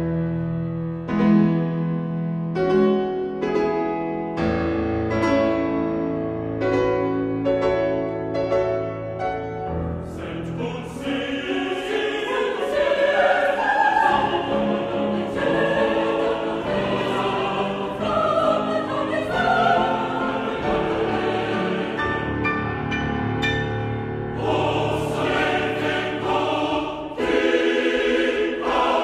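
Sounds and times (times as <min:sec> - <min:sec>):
piano chords: 0:00.0 - 0:29.0
mixed choir singing: 0:10.0 - 0:22.5, 0:24.2 - 0:29.0.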